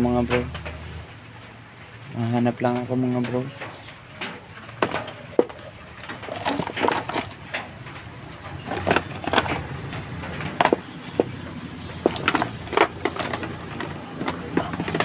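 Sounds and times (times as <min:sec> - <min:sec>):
hands rummaging through parts: 0:03.2 - 0:15.0
objects clattering together: 0:03.2 - 0:15.0.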